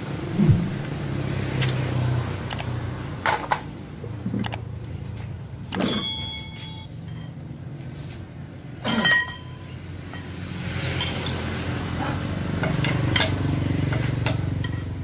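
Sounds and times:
light clicks: 2.5s - 2.7s
metal tools clanking: 5.7s - 7.4s, 8.9s - 9.6s.

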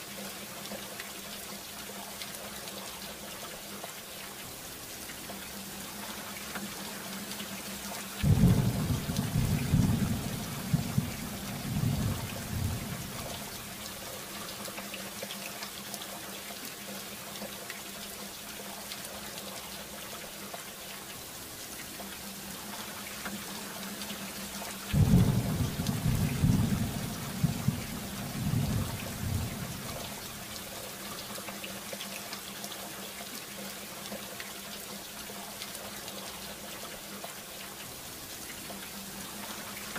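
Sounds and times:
steady rain hiss: 0.0s - 39.9s
thunder rumbling: 8.2s - 13.4s, 25.0s - 30.2s.

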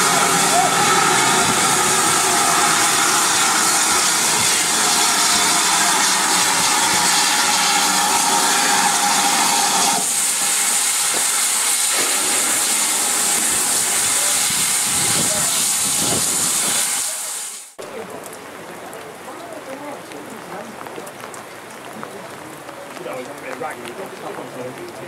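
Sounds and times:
steam locomotive hissing: 0.0s - 17.8s.

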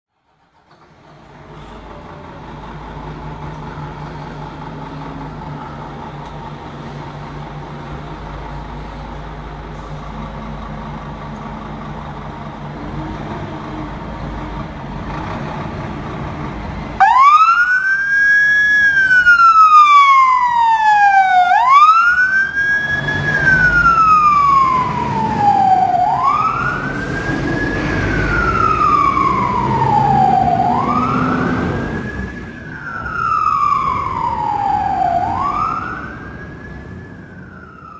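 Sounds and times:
diesel engine running: 0.4s - 37.9s
wailing siren: 17.0s - 37.9s.

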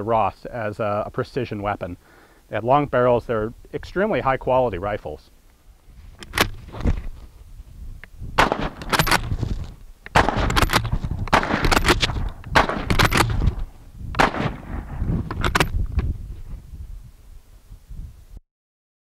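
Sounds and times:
gunshot echo: 8.4s - 9.3s, 10.1s - 15.7s
rifle shots cracking: 8.4s - 9.5s, 10.1s - 15.8s.

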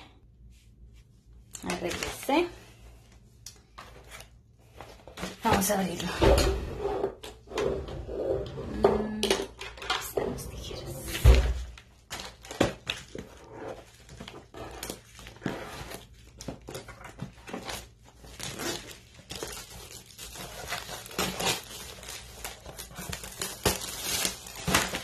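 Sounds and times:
paper crinkling and tearing: 11.7s - 25.0s.

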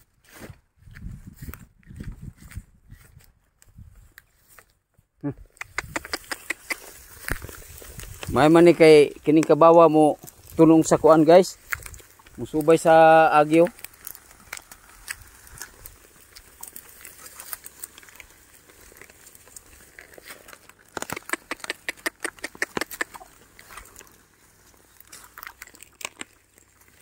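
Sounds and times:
sharp crackles: 5.2s - 27.0s
plow crunching through grass: 5.8s - 27.0s.

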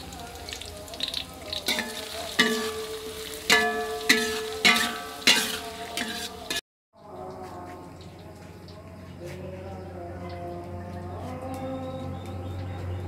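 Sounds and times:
onion sizzling in oil: 0.0s - 6.6s
metal spatula scraping wok: 1.6s - 6.6s
wok ringing: 1.6s - 6.6s.

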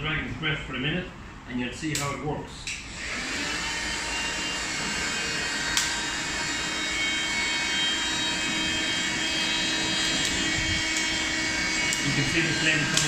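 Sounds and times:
sharp click: 1.9s - 2.9s, 5.7s - 6.0s
air blower running: 2.8s - 13.0s.

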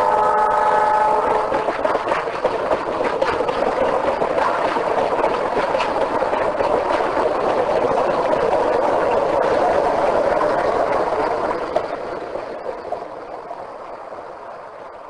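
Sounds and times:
train wheels on rail: 0.0s - 15.0s.

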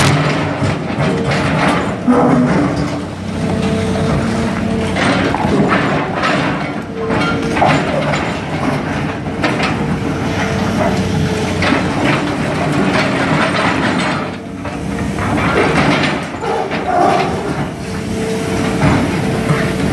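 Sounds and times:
hydraulic jaws crushing concrete: 0.0s - 10.9s
diesel engine under load: 0.0s - 19.9s
falling rubble clattering: 4.8s - 10.6s.

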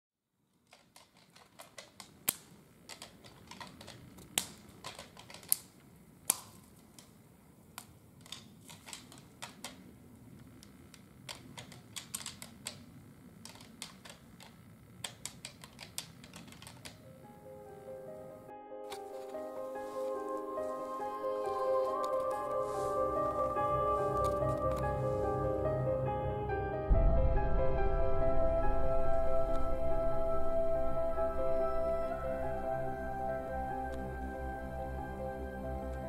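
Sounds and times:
soft steady rustle: 0.4s - 17.1s, 19.0s - 25.3s
twigs snapping: 0.6s - 9.8s, 18.9s - 25.0s.

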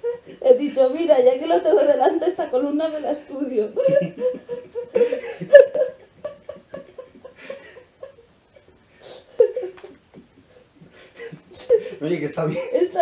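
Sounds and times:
woman laughing: 1.7s - 8.3s, 9.4s - 10.0s, 11.2s - 13.0s.

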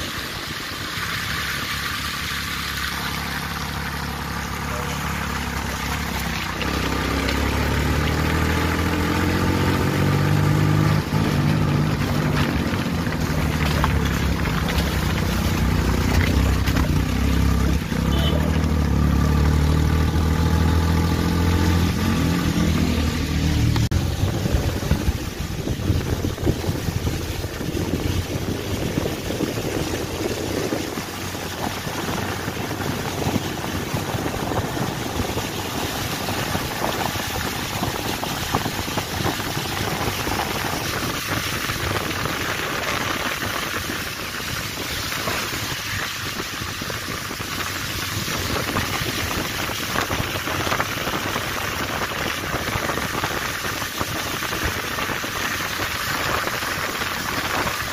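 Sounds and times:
vehicle engine: 0.0s - 57.9s
faint crackles: 11.0s - 18.6s
wind hiss on microphone: 24.0s - 57.9s.

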